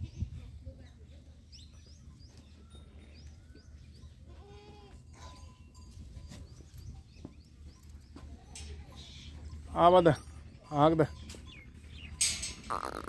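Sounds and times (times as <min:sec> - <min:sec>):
goat kids bleating: 0:04.2 - 0:05.3.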